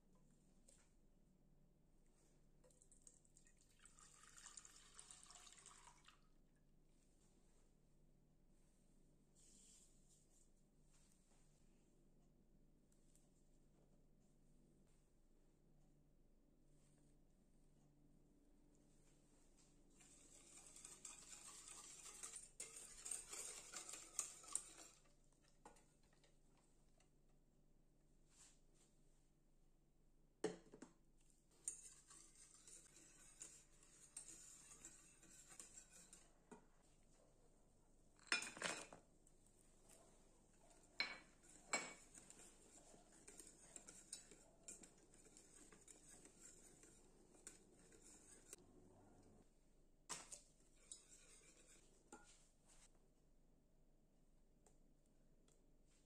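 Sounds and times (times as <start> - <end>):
whisk scraping a saucepan: 20.0 - 26.1, 31.5 - 36.6, 41.1 - 48.6, 50.2 - 52.8.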